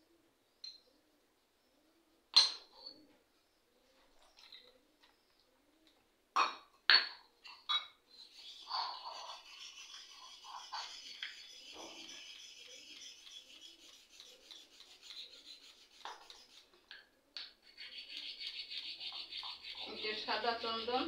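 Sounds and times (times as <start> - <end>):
wood rubbed on wet grinding stone: 8.2 - 16.8, 17.6 - 21.0.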